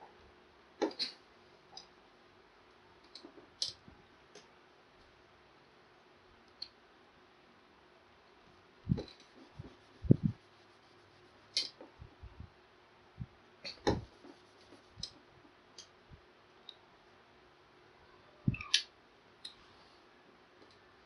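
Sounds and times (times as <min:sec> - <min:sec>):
low thumps: 0:08.9 - 0:10.4.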